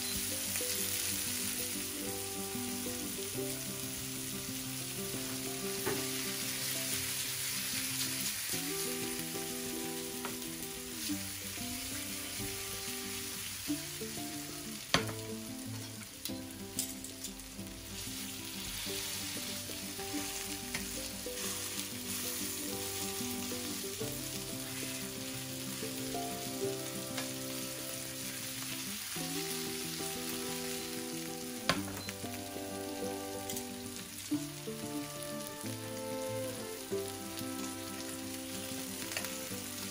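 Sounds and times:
fish sizzling in a frying pan: 0.0s - 39.9s
metal tongs clicking on pan: 15.8s - 17.4s.

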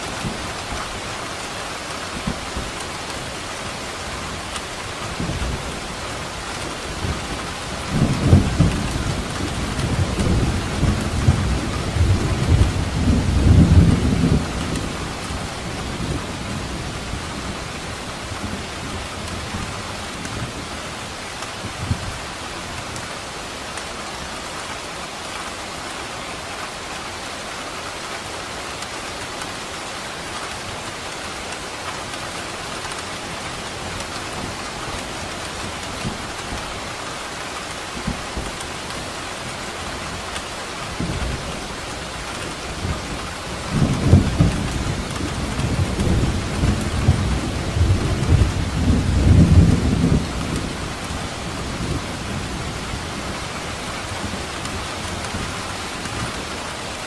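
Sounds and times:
rain hissing: 0.0s - 57.0s
thunder rumbling: 5.1s - 20.6s, 41.0s - 56.6s.

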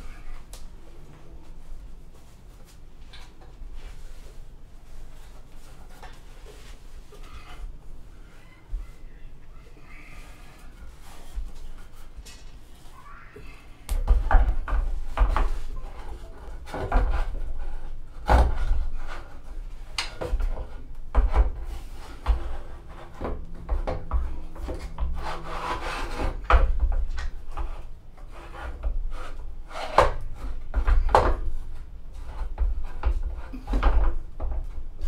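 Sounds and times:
telescope tube scraping on mount: 24.5s - 26.6s.

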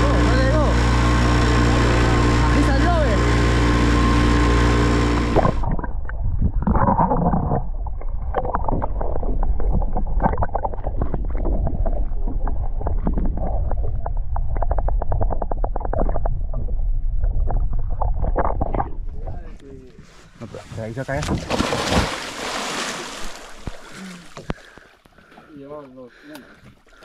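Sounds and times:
underwater low rumble: 0.0s - 20.4s
underwater clicks and bubbling: 5.4s - 19.3s, 23.6s - 25.3s.

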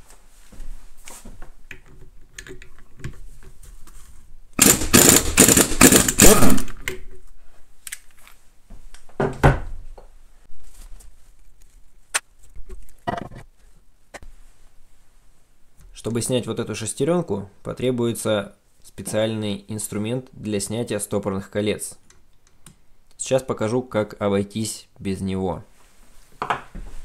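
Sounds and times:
impact wrench spinning: 4.6s - 6.8s.

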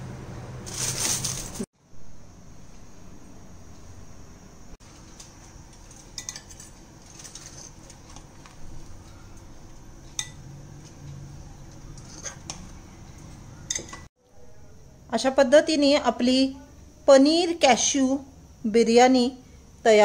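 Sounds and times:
spoon scraping a pan: 11.8s - 12.7s.

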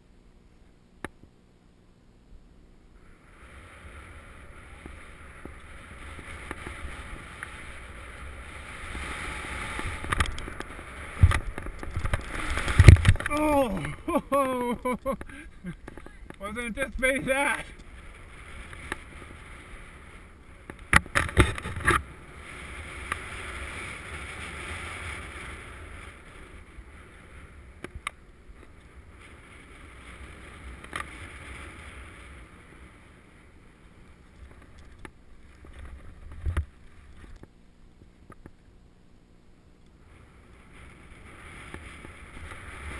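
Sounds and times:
skis hissing through powder snow: 3.0s - 15.0s, 16.4s - 20.6s, 22.0s - 27.8s, 40.1s - 42.9s.

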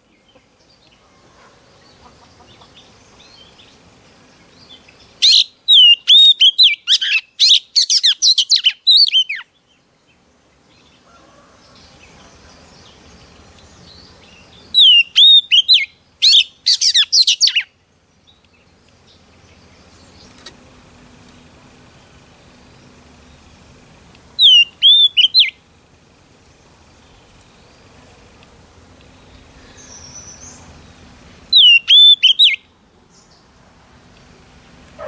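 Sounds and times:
bird singing whistled notes: 4.5s - 9.6s, 12.8s - 18.4s, 24.4s - 25.6s, 29.2s - 30.7s, 31.5s - 33.4s.

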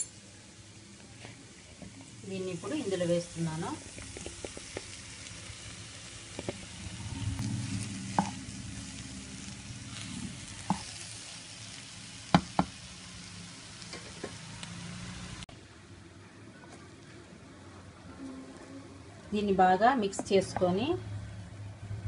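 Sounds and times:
food sizzling in a pan: 0.0s - 15.5s.

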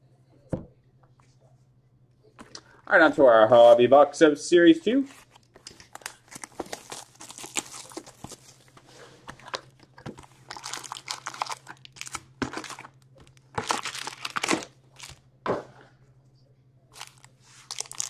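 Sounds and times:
plastic and foil wrapping crinkling: 5.1s - 15.2s, 17.0s - 18.0s.

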